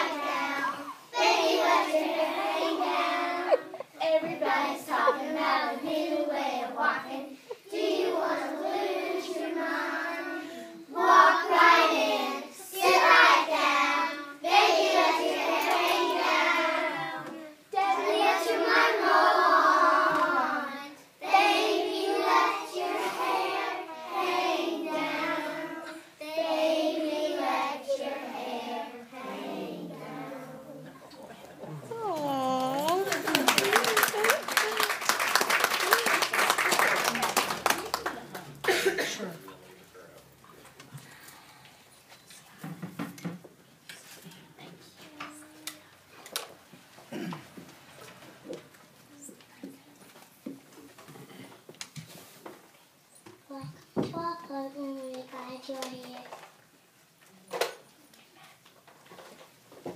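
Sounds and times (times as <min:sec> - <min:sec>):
children singing together: 0:00.0 - 0:30.9.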